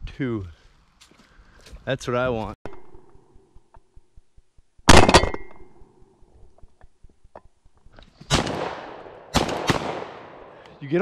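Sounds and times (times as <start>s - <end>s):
shotgun shots: 4.9s - 5.6s, 8.3s - 10.6s.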